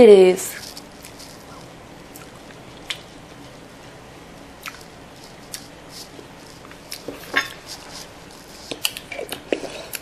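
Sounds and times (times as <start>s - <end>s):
lip smacks: 0.8s - 3.1s, 4.6s - 4.9s, 8.7s - 10.0s
mouth tasting sounds: 4.6s - 10.0s.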